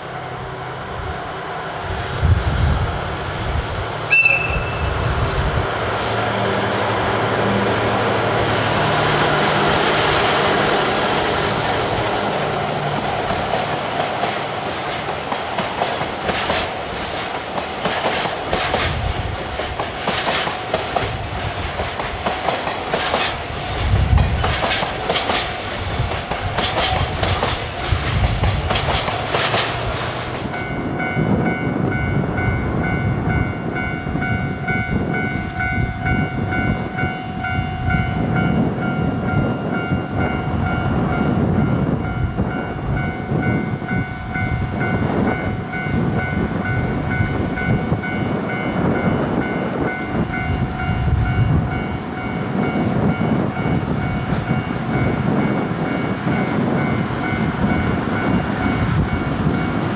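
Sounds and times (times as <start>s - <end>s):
train engine drone: 0.0s - 59.9s
train wheels clacking over rail joints: 12.7s - 30.6s.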